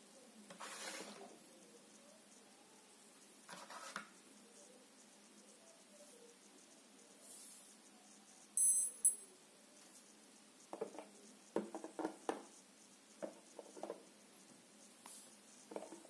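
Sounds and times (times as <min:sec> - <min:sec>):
short high electronic beeps: 0:08.6 - 0:09.3
light knocks and taps of plastic: 0:10.7 - 0:12.5.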